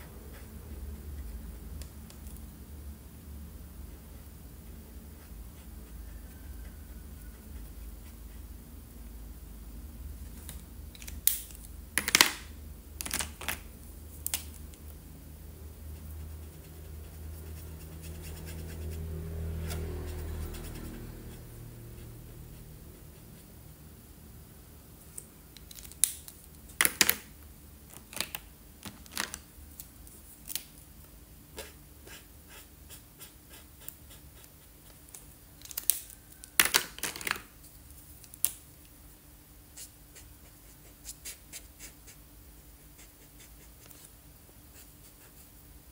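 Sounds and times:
marker caps clicking: 0:11.0 - 0:13.6, 0:25.1 - 0:27.3, 0:35.6 - 0:37.5
marker scratching on paper: 0:15.9 - 0:23.6, 0:31.5 - 0:35.1, 0:39.8 - 0:42.2, 0:42.8 - 0:44.1, 0:44.7 - 0:45.6.

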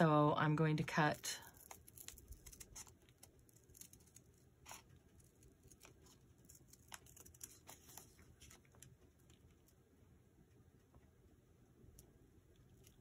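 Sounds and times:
scissors snipping paper: 0:01.4 - 0:08.6.

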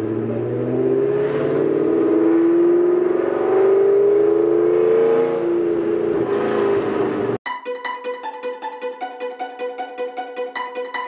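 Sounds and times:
car engine accelerating: 0:00.0 - 0:07.4.

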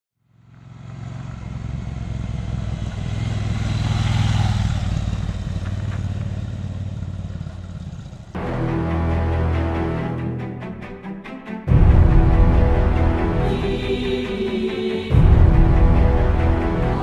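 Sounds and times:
motorcycle passing by: 0:00.2 - 0:08.4.

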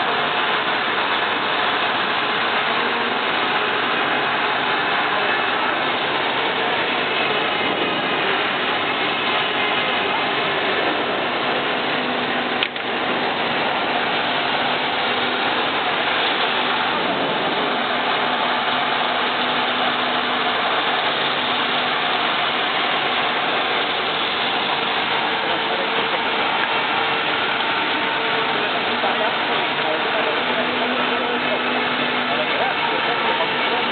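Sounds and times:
welding machine hum and hiss: 0:00.0 - 0:33.9
sharp click: 0:12.6 - 0:12.9.

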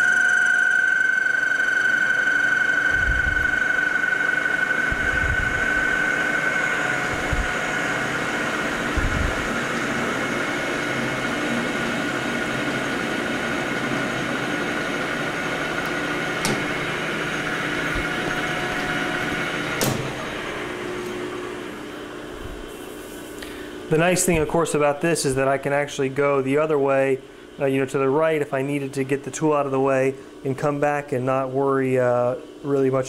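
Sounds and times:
metal lathe running: 0:00.0 - 0:22.0
lathe clunk: 0:15.8 - 0:20.5
sharp click: 0:15.9 - 0:16.7.

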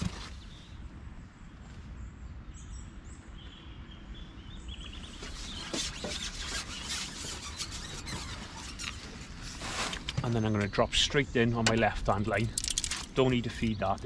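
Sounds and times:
small birds chirping: 0:00.0 - 0:14.0
fishing pole rustling and scraping: 0:05.1 - 0:10.8, 0:12.3 - 0:13.8.

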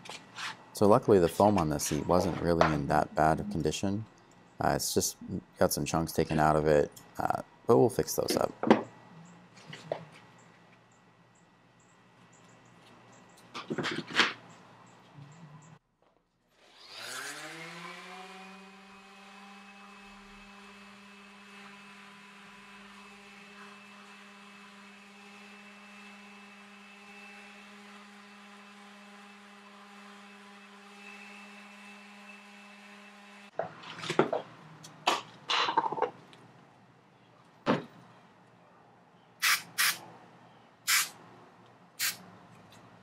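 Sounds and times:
orbital sander motor sanding foam: 0:16.9 - 0:33.5.

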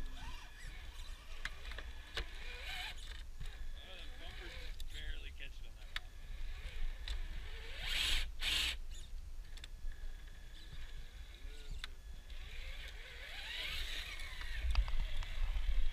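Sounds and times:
electric motor whining: 0:00.0 - 0:15.9
wheels scrabbling over rocks: 0:10.2 - 0:15.9.

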